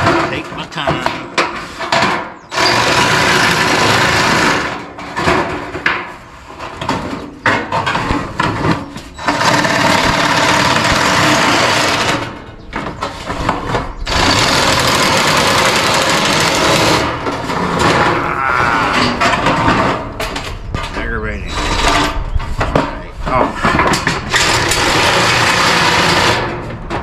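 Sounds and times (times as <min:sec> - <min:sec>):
power shear cutting steel panel: 0:02.5 - 0:05.6, 0:09.2 - 0:12.5, 0:13.1 - 0:18.0, 0:23.9 - 0:27.0.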